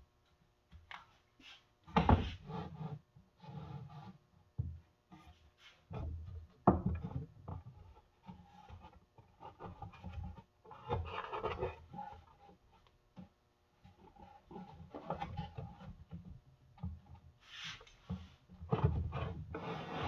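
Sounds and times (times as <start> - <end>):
wood scraping on wood: 17.4 - 20.0.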